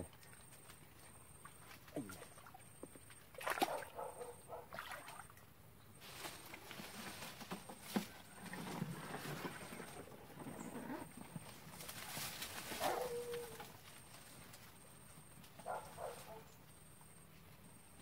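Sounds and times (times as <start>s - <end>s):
muddy water splashing: 0.0s - 5.5s.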